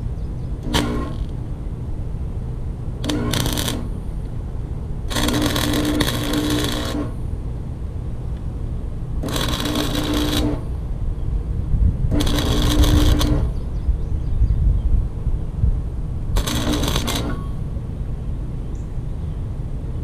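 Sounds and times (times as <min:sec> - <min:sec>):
wire feed hum: 0:00.0 - 0:13.8, 0:15.4 - 0:18.5
welding arc crackling: 0:00.6 - 0:01.4, 0:03.0 - 0:04.1, 0:05.1 - 0:07.2, 0:09.2 - 0:10.8, 0:12.1 - 0:13.6, 0:16.4 - 0:17.6.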